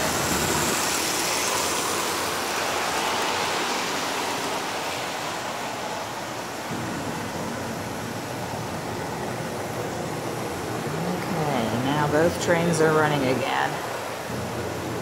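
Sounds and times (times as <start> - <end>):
model train wheels rolling on rails: 0.0 - 6.4.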